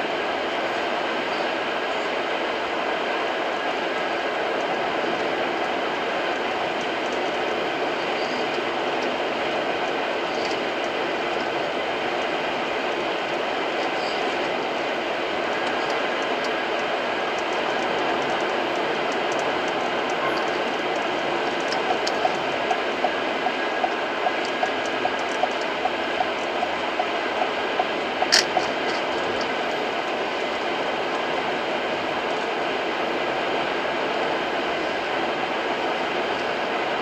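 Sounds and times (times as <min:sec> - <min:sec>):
light ticking: 0:13.3 - 0:30.1.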